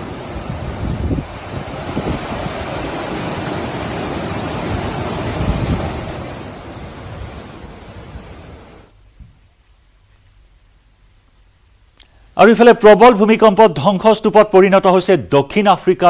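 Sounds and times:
floodwater rushing: 0.0s - 8.9s
wind buffeting microphone: 0.0s - 9.6s.

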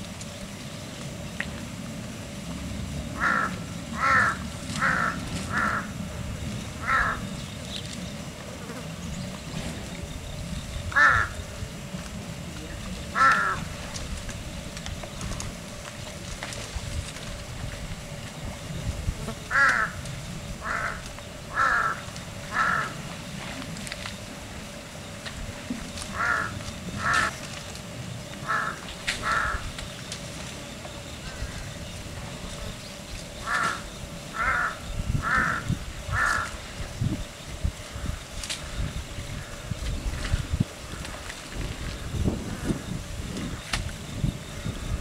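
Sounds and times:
low outdoor rumble: 0.0s - 45.0s
crow cawing: 3.2s - 6.0s, 6.8s - 7.3s, 10.9s - 11.4s, 13.1s - 13.7s, 19.5s - 20.0s, 20.6s - 23.0s, 26.1s - 27.4s, 28.4s - 29.8s, 33.4s - 36.6s.

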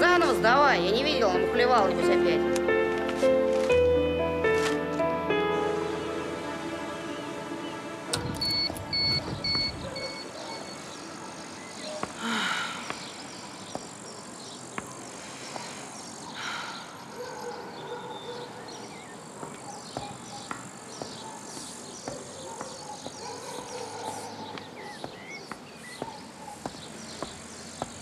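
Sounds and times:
insects chirping: 5.6s - 28.0s
heeled shoes tapping on pavement: 19.3s - 28.0s.

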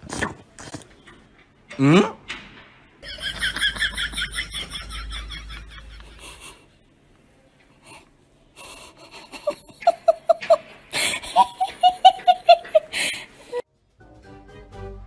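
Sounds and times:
person giggling: 3.0s - 6.7s, 8.6s - 13.6s.

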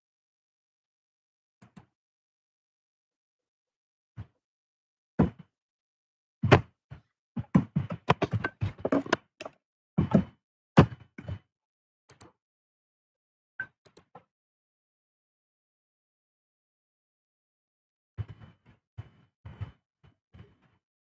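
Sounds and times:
thuds and knocks on a desk: 6.4s - 6.7s, 7.4s - 11.4s.

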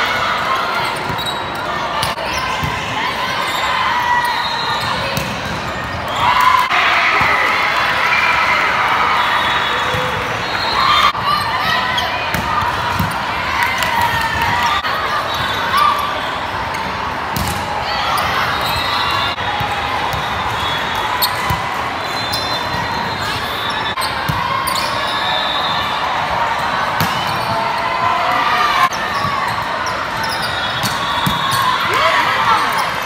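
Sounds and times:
echoing crowd voices: 0.0s - 33.0s.

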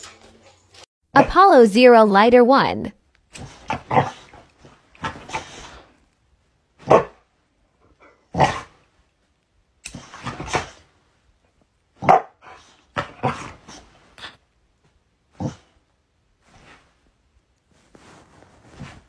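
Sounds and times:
dog barking: 6.9s - 7.2s, 12.0s - 12.4s.

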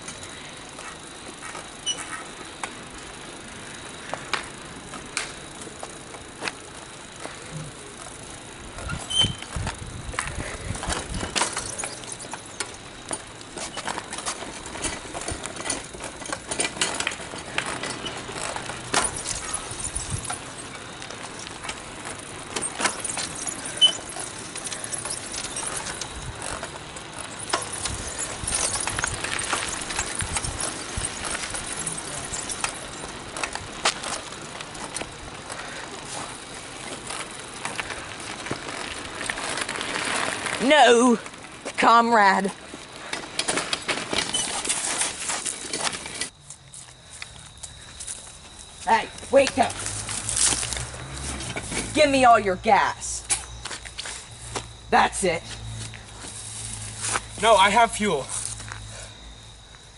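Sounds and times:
wheels rattling on pavement: 0.0s - 59.9s
high squeaks: 1.8s - 2.2s, 8.9s - 9.6s, 22.6s - 33.2s, 44.2s - 45.9s.

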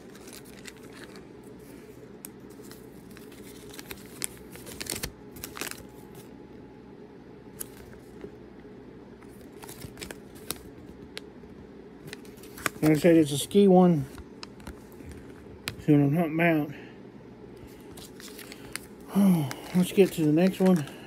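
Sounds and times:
wrapper crinkling and tearing: 0.0s - 1.3s, 2.4s - 6.3s, 9.2s - 10.7s, 17.9s - 21.0s.

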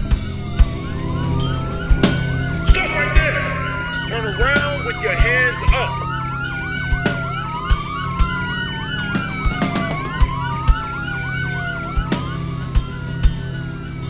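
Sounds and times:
film score with low drone: 0.0s - 7.4s
police siren wailing: 0.0s - 14.0s.

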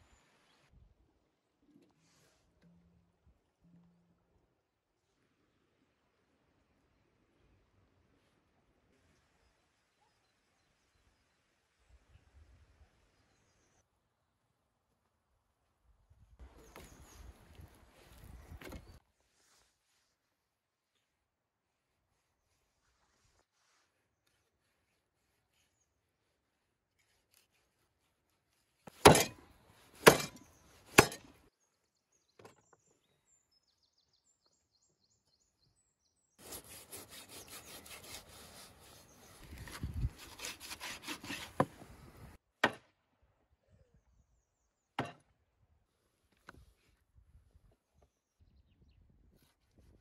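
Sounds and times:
cleaver chopping on wooden board: 28.9s - 29.4s, 30.0s - 31.3s, 42.6s - 42.9s
rasping cutting strokes: 30.0s - 31.3s, 36.4s - 42.3s.

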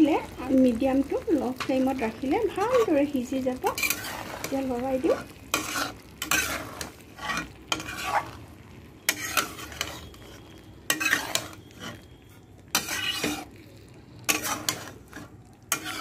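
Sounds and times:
soft sizzle: 0.0s - 16.0s
spatula scraping a metal pan: 2.5s - 8.4s, 9.0s - 13.6s, 14.2s - 16.0s.

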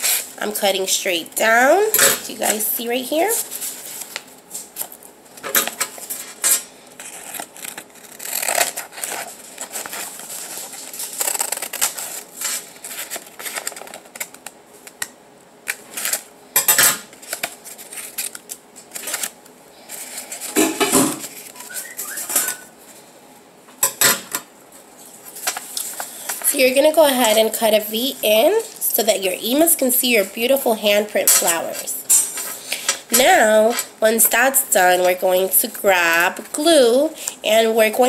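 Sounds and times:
paper rustling: 5.7s - 15.1s, 17.1s - 22.7s
scissors cutting paper: 7.0s - 14.4s.

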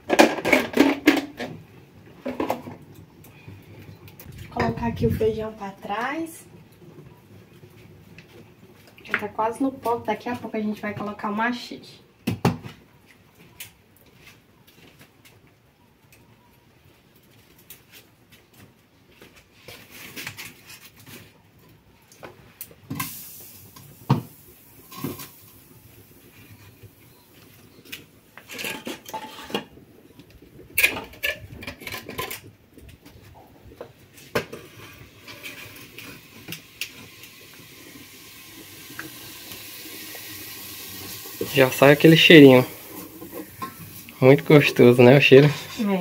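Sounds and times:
metal pots and utensils clanking: 0.0s - 1.6s, 24.8s - 25.6s, 28.4s - 29.8s, 30.7s - 32.5s, 34.3s - 36.5s, 41.3s - 45.8s.

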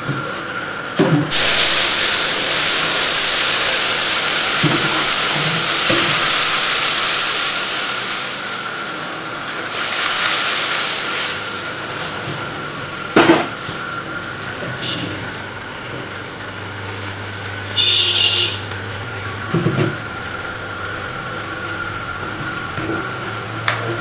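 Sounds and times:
lentils sizzling in hot oil: 1.3s - 13.0s.

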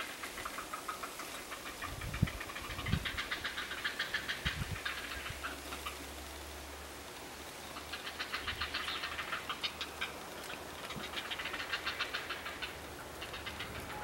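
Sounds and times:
heron chicks chattering calls: 0.0s - 6.0s, 7.7s - 14.0s.

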